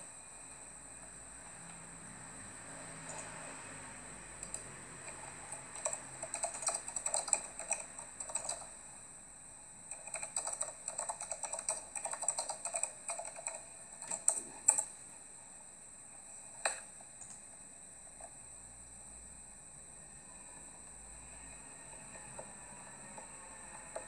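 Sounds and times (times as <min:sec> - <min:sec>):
rapid keyboard typing: 0:03.1 - 0:03.5, 0:04.4 - 0:08.8, 0:09.9 - 0:15.0.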